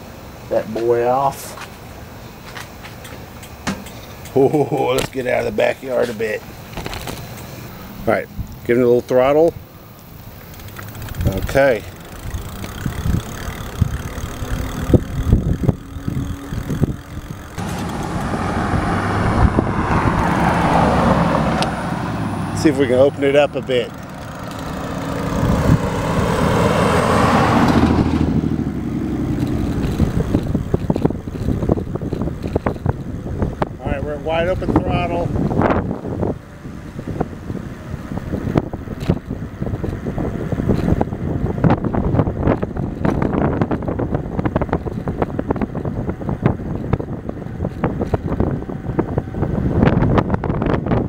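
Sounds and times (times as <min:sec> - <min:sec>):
rush of wind and road noise: 0:00.0 - 0:51.0
bike rattling and knocking: 0:02.6 - 0:07.5, 0:10.0 - 0:18.3, 0:22.6 - 0:37.3, 0:38.2 - 0:51.0
wind buffeting on microphone: 0:03.8 - 0:51.0.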